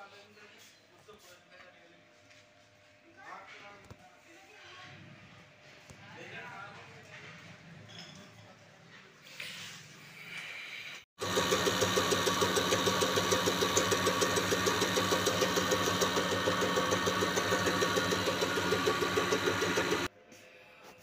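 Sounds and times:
machine hum: 11.2s - 20.1s
rapid injector ticking: 11.2s - 20.1s.

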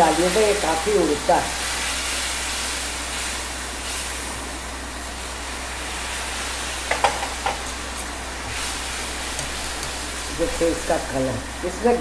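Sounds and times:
sizzling and bubbling water: 0.0s - 12.0s
spatula stirring in a pan: 5.9s - 10.7s.

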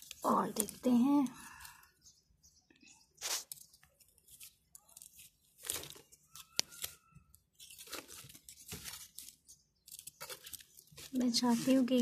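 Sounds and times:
hands digging in soil: 3.2s - 6.9s.

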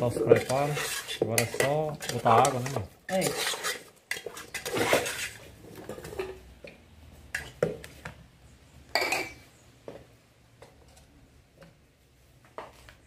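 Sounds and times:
stirring meat in a pot: 0.0s - 7.9s.

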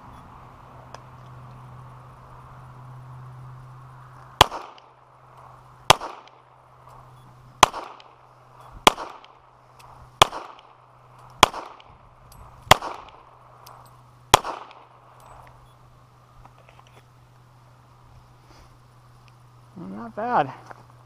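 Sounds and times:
handgun shots echoing: 4.4s - 4.9s, 5.9s - 6.4s, 7.6s - 8.2s, 8.8s - 9.4s, 10.2s - 10.8s, 11.4s - 11.9s, 12.7s - 13.3s, 14.3s - 15.0s.

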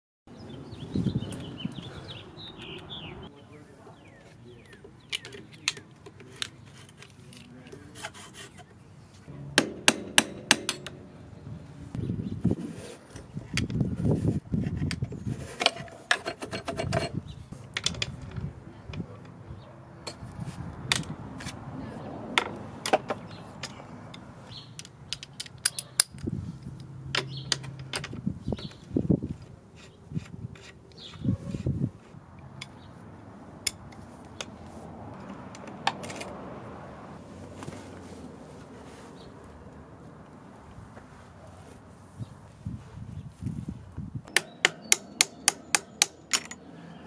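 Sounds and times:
tools and metal parts knocking: 9.6s - 11.1s, 14.8s - 19.3s, 24.7s - 30.8s, 44.3s - 46.6s.

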